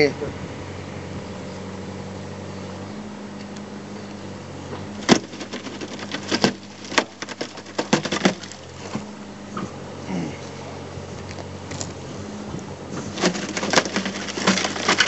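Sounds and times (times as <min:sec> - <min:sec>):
engine drone: 0:00.0 - 0:15.0
concrete pipe cracking: 0:05.0 - 0:09.0, 0:13.0 - 0:15.0.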